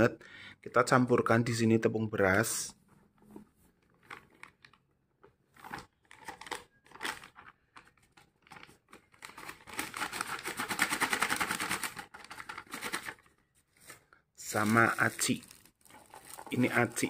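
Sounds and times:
plastic bag crinkling: 0:03.8 - 0:04.9, 0:05.5 - 0:17.0.

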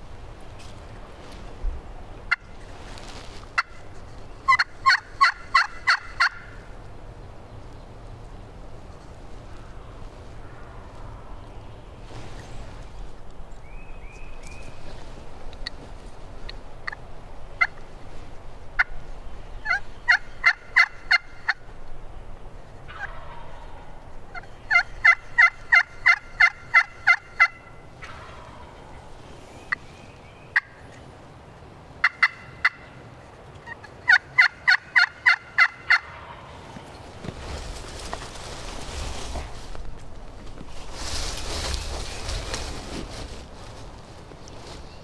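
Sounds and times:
turkey clucks: 0:02.3 - 0:02.6, 0:03.5 - 0:06.7, 0:17.6 - 0:17.8, 0:19.6 - 0:21.7, 0:22.8 - 0:29.8, 0:30.5 - 0:31.0, 0:32.0 - 0:37.0
turkey yelping: 0:04.5 - 0:06.6, 0:19.6 - 0:21.6, 0:22.9 - 0:29.0, 0:32.0 - 0:32.9, 0:33.6 - 0:36.5.

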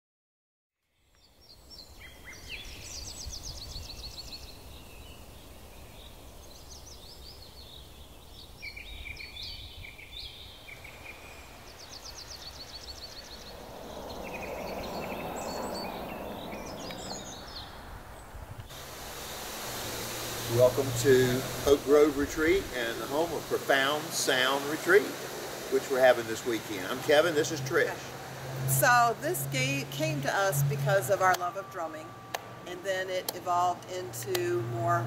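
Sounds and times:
birds singing and chirping: 0:01.0 - 0:18.4, 0:20.0 - 0:35.0
broad rushing noise: 0:10.8 - 0:32.7.

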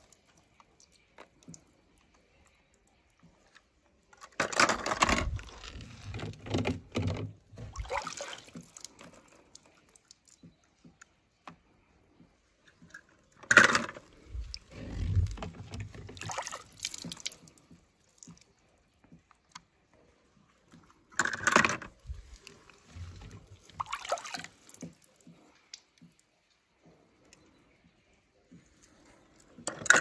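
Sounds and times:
toy cars clattering: 0:04.1 - 0:05.4, 0:21.2 - 0:22.0, 0:29.6 - 0:30.0
water splashing: 0:07.6 - 0:10.4, 0:14.2 - 0:18.6, 0:22.0 - 0:26.1.

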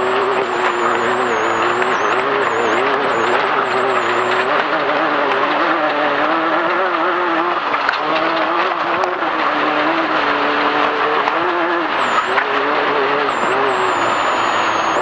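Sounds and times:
constant rushing noise: 0:00.0 - 0:15.0
off-road vehicle engine: 0:00.0 - 0:15.0.

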